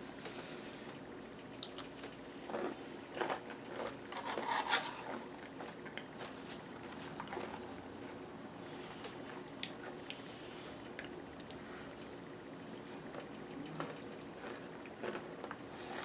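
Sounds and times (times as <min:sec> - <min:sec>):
chewing crunchy granola: 0:01.2 - 0:07.8, 0:12.7 - 0:16.0.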